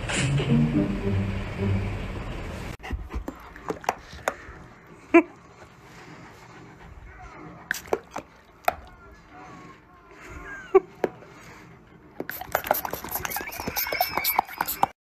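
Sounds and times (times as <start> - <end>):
dog panting: 2.8 - 8.6, 11.2 - 14.9
dog yelping: 13.0 - 14.9.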